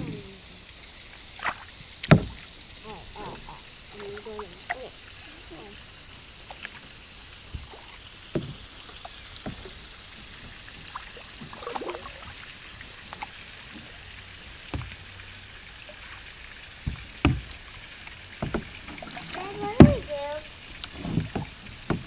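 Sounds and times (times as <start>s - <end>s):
faint wash of water: 0.0s - 22.0s
paddle dipping in water: 0.0s - 22.0s
paddle knocking against kayak: 2.0s - 2.5s, 7.5s - 12.4s, 14.7s - 15.0s, 16.8s - 20.2s, 20.8s - 22.0s.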